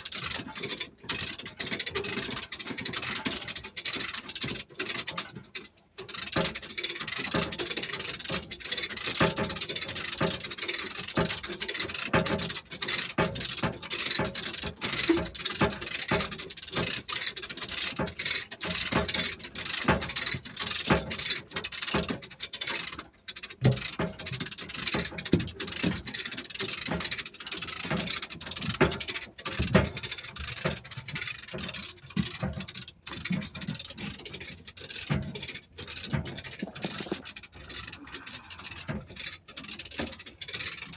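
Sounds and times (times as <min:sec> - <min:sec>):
ratchet pawls clicking: 0:00.0 - 0:05.3, 0:06.0 - 0:40.9
chains rattling: 0:33.7 - 0:40.9.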